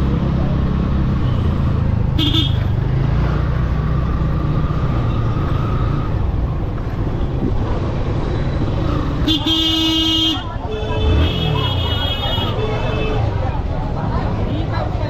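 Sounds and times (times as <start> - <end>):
road traffic rumble: 0.0 - 15.0
vehicle horn: 2.2 - 2.7, 9.3 - 13.2.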